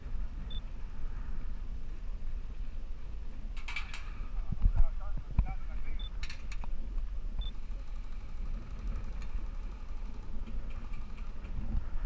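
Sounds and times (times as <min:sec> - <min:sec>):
wind on microphone: 0:00.0 - 0:12.0.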